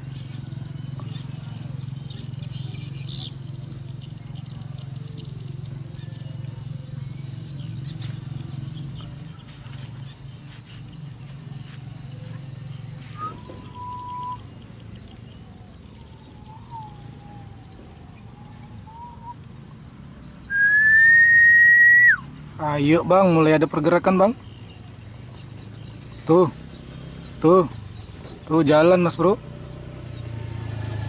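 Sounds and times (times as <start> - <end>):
low outdoor hum: 0.0 - 31.0
person whistling: 13.2 - 14.4, 20.5 - 22.3.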